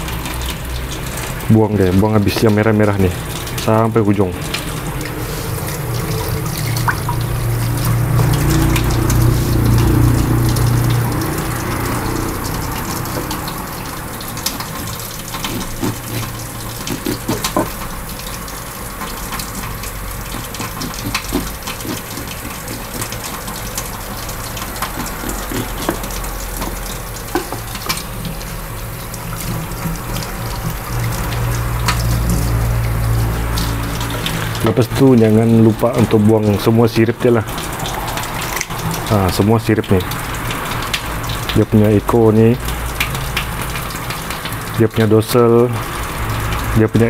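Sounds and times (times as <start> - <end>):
tap water running into sink: 0.0 - 47.0
knife scraping fish backbone: 14.4 - 17.9, 19.6 - 23.9, 24.6 - 28.0.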